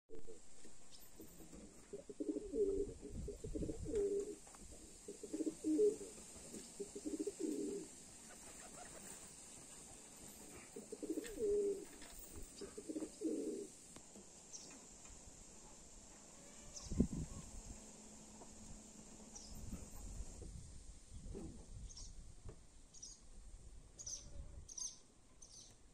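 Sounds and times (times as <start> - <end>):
pigeons cooing: 1.5 - 9.4, 10.4 - 13.7.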